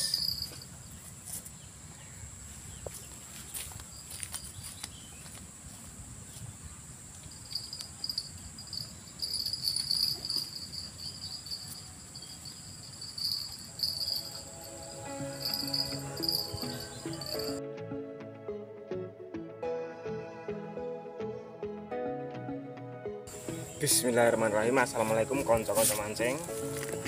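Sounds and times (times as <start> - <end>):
rapid pulsing insect chirps: 0.0 - 1.0, 7.0 - 17.6
insects buzzing: 0.0 - 1.7, 2.4 - 17.6, 23.3 - 27.0.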